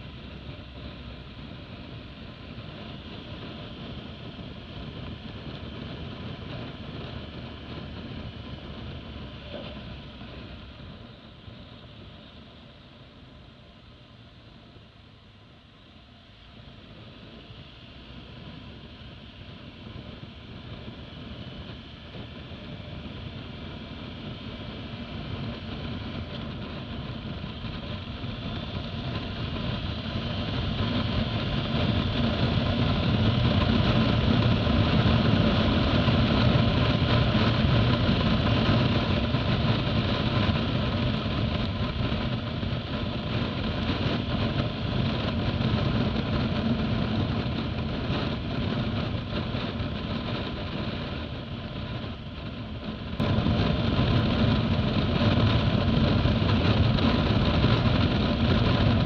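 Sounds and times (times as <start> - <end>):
wind noise: 0.0 - 59.0
motorcycle engine accelerating: 16.6 - 59.0.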